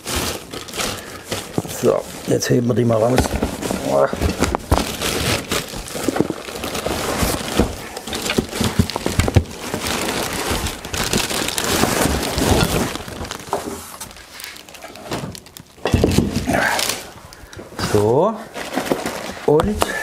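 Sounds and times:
plastic film crinkling: 0.0s - 20.0s.

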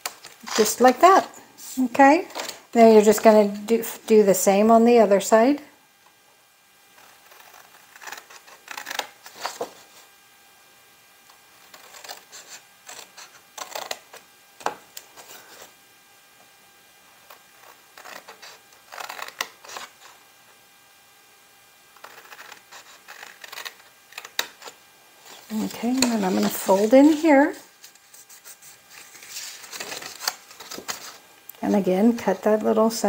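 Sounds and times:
scissors snipping cardstock: 25.5s - 27.2s.

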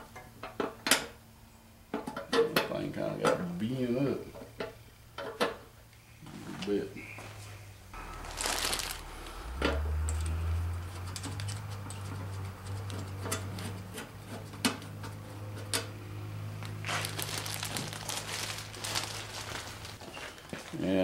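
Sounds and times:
steady low hum: 2.8s - 20.0s
scraping rustle: 7.3s - 15.9s, 16.8s - 21.0s.

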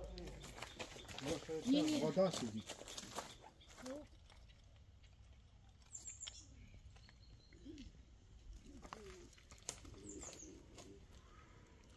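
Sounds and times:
bird cooing: 7.6s - 8.0s, 8.6s - 11.6s.

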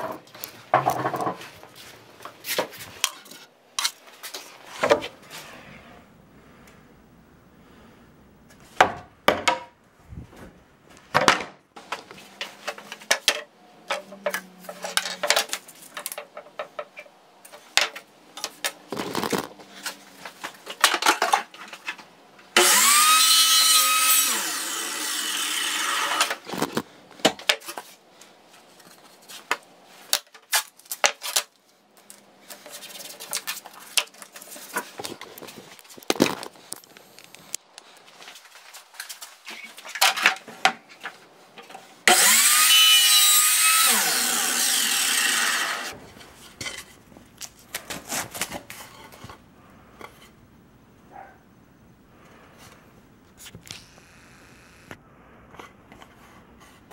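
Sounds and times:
wooden boards knocking: 8.8s - 9.8s
power tool motor whining: 22.6s - 26.3s, 42.1s - 45.9s, 53.7s - 54.9s.

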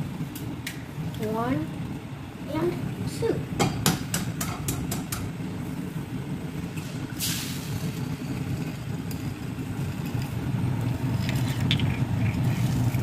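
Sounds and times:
gas burner rumble: 0.0s - 13.0s
egg hissing in pan: 2.8s - 13.0s.

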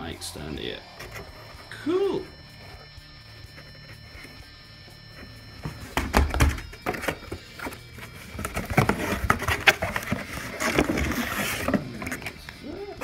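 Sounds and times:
clicks and thumps: 5.6s - 11.2s
packaging rustling: 5.9s - 12.7s.

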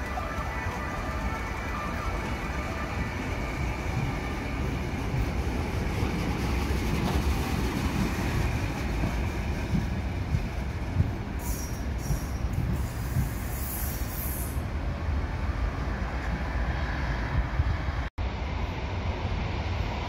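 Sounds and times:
electric train approaching: 0.0s - 20.0s
train wheels rumbling on rails: 0.0s - 20.0s.

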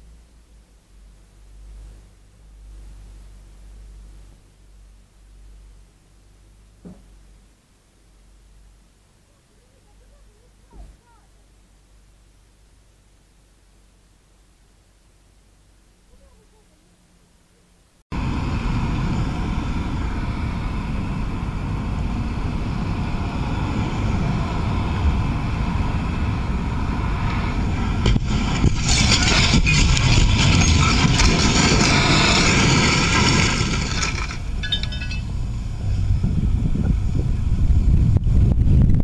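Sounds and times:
wind rushing over microphone: 18.1s - 33.8s, 34.4s - 39.0s
loud rushing noise: 18.1s - 39.0s.

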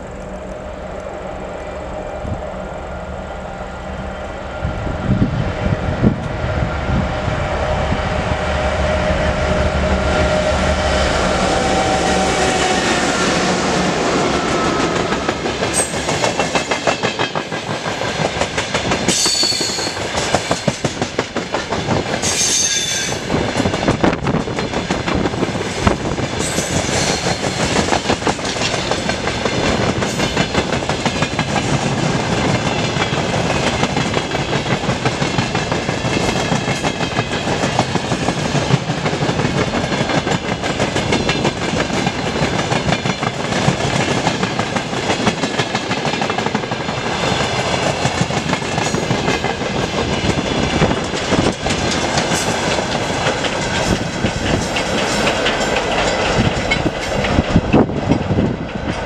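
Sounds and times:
diesel locomotive engine rumbling: 0.0s - 59.0s
train wheels clattering over rail joints: 14.4s - 59.0s.

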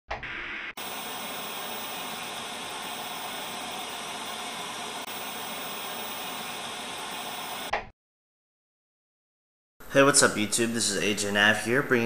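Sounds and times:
white-noise hiss: 0.8s - 7.7s.

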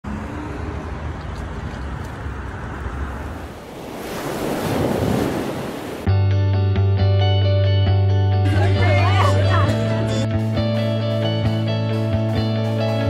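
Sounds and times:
wind rumbling on microphone: 0.1s - 6.0s
ocean water rushing: 0.1s - 6.1s.

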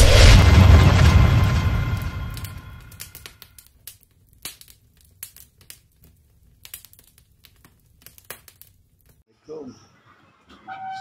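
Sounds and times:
deep boom: 0.0s - 3.2s
faint clicks and crackles: 2.3s - 9.2s.

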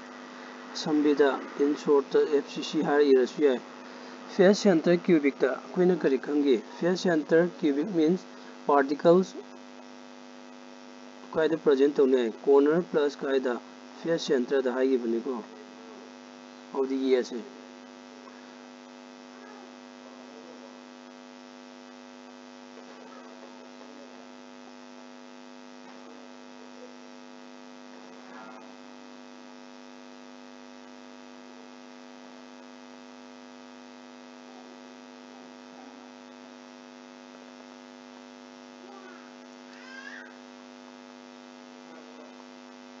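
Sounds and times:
electrical mains hum: 0.0s - 43.0s.

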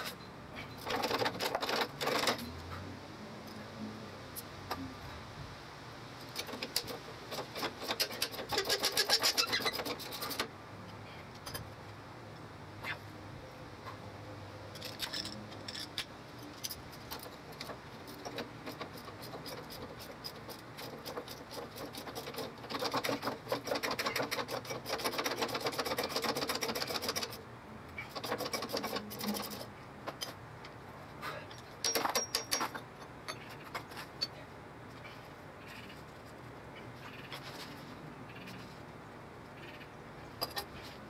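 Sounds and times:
rapid metallic clicking of hand tool: 0.8s - 2.5s, 6.3s - 10.5s, 14.8s - 27.4s, 28.1s - 30.4s, 31.5s - 33.9s.

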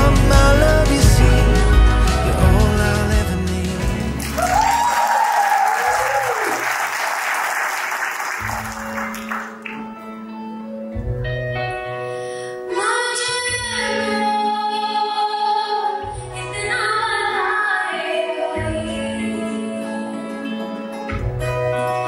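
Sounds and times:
applause: 4.2s - 10.0s
woman singing slow song: 12.7s - 20.4s.

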